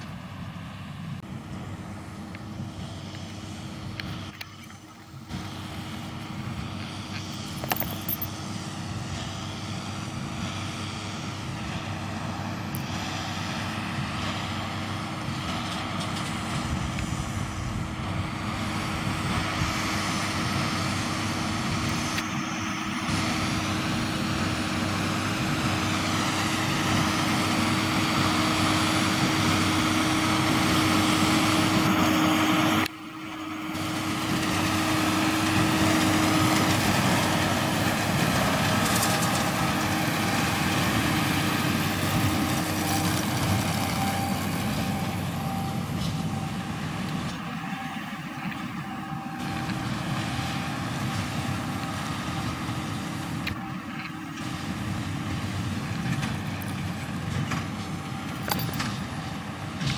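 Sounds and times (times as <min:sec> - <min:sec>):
tractor running under load: 0:00.0 - 0:59.9.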